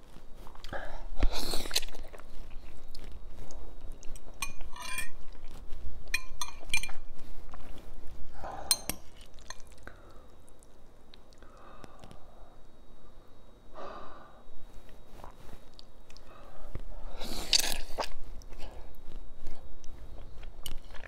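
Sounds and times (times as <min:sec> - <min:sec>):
chewing: 0:01.5 - 0:08.0, 0:08.7 - 0:12.2
fork clinking against glass bowl: 0:04.4 - 0:05.2, 0:06.1 - 0:07.0, 0:08.7 - 0:09.7.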